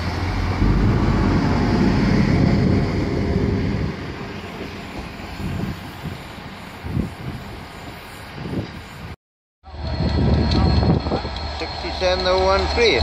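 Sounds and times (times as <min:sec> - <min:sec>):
diesel train engines pulling away: 0:00.0 - 0:09.1, 0:09.7 - 0:13.0
low thumps: 0:00.3 - 0:05.7.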